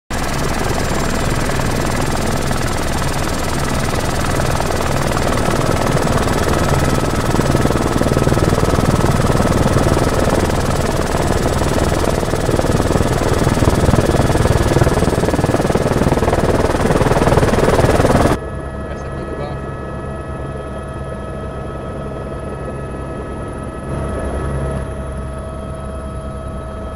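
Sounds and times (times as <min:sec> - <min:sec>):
helicopter engine and rotor drone: 0:00.1 - 0:26.9.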